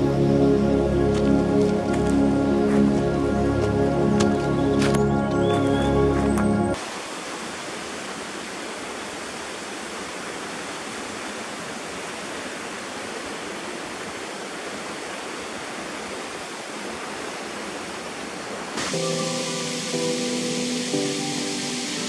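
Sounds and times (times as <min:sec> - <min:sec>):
waterfall rushing: 0:06.8 - 0:22.0.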